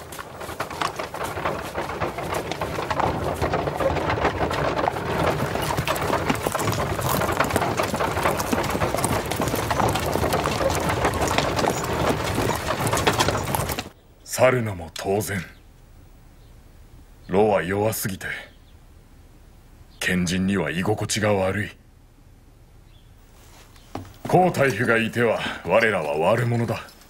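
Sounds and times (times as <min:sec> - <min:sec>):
horse hooves clip-clopping: 0:00.0 - 0:14.0, 0:23.3 - 0:27.0.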